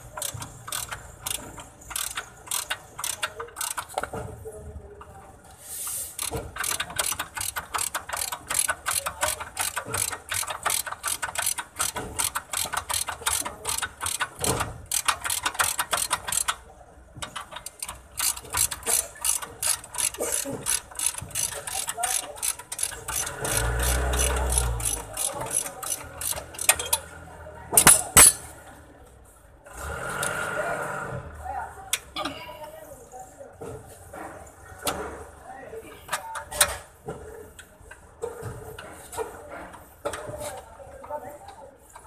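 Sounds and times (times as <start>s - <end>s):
socket ratchet clicking: 0.2s - 4.1s, 6.2s - 16.6s, 17.2s - 27.0s.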